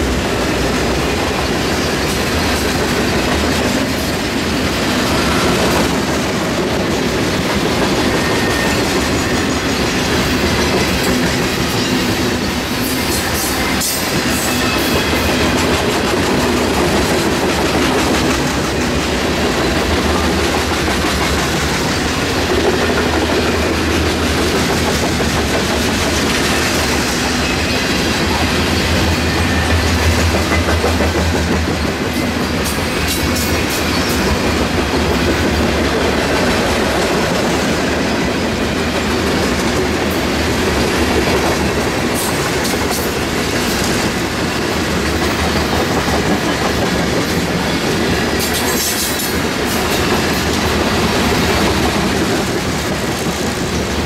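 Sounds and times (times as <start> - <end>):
clickety-clack over rail joints: 0.0 - 54.0
train wheels rumbling on rail: 0.0 - 54.0.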